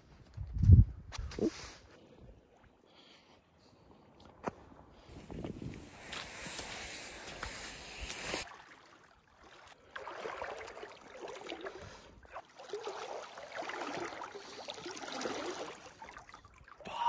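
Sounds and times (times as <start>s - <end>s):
boots wading through shallow water: 6.1s - 16.7s.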